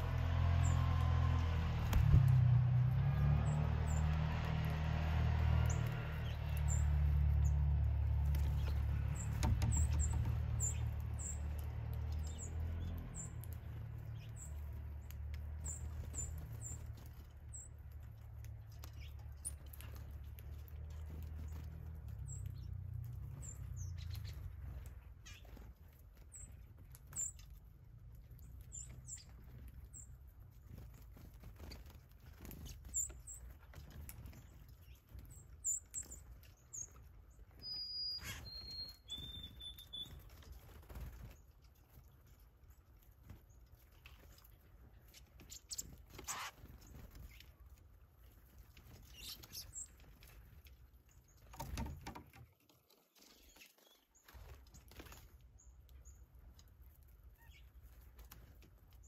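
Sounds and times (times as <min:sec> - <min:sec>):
birds tapping at feeder: 0:00.0 - 0:52.6
high bird chips and calls: 0:05.5 - 0:30.3, 0:30.9 - 0:42.8, 0:43.4 - 0:47.8, 0:48.8 - 0:52.2, 0:57.2 - 0:58.1
whistled bird song: 0:37.6 - 0:40.3
wing flutters: 0:43.0 - 0:50.6.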